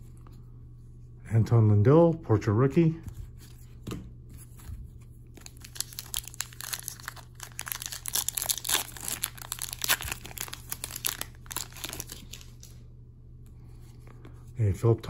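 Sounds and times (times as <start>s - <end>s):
foil wrapper crinkling and tearing: 5.3s - 12.7s.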